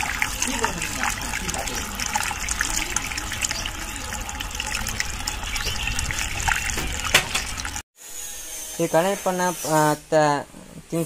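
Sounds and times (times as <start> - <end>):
fuel pouring into a tank: 0.0 - 7.8.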